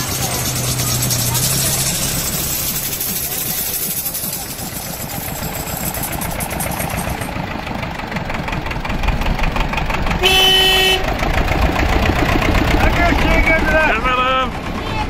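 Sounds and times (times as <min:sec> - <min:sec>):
tractor engine rumbling: 0:00.0 - 0:15.0
vehicle horn: 0:10.2 - 0:11.2.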